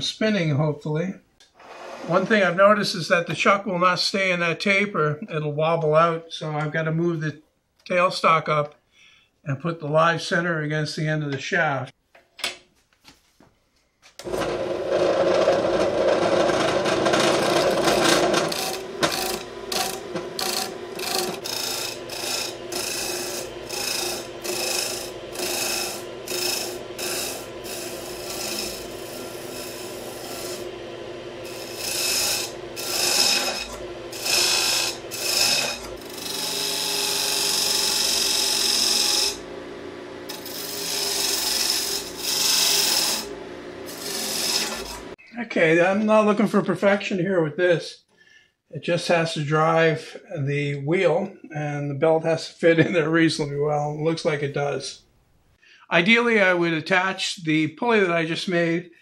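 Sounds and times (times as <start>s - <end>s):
turning tool scraping wood: 1.5s - 2.5s, 14.2s - 39.4s, 40.3s - 45.2s
wood lathe running: 14.2s - 45.2s.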